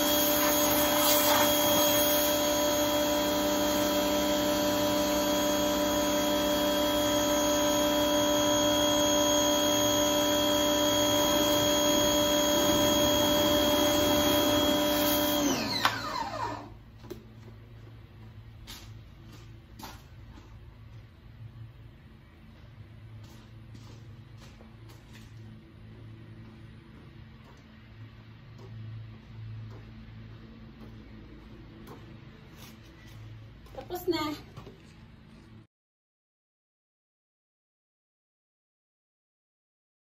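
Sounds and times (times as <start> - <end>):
water spraying: 0.0 - 2.3
pressure washer motor whine: 0.0 - 16.8.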